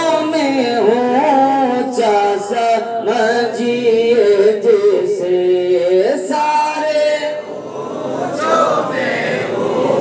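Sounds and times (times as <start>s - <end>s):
man singing unaccompanied: 0.0s - 7.5s.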